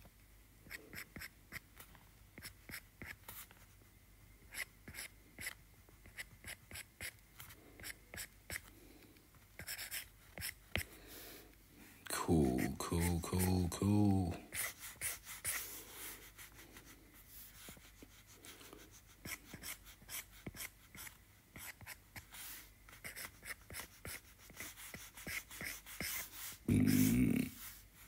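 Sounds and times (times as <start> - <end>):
person humming: 12.1 - 14.5, 26.7 - 27.6.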